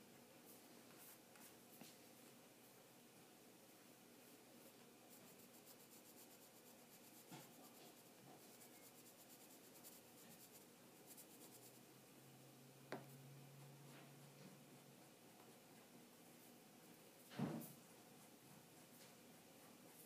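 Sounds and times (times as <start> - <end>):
faint low hum: 0.0 - 20.0
pencil scratching on paper: 4.6 - 11.9.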